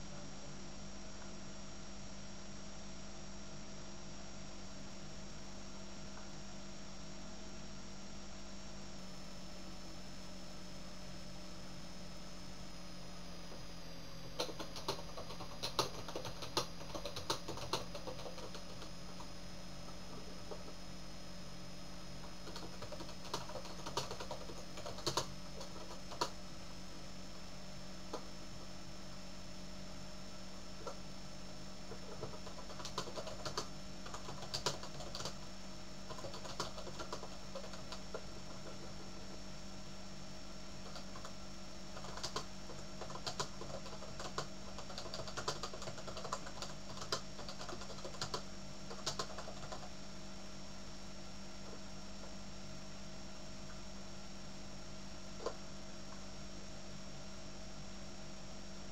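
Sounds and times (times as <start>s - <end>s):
steady low hum: 0.0s - 58.9s.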